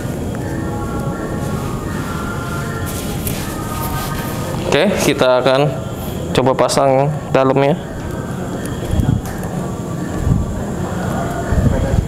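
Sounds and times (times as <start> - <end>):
nylon fabric rustling on microphone: 1.4 - 5.1.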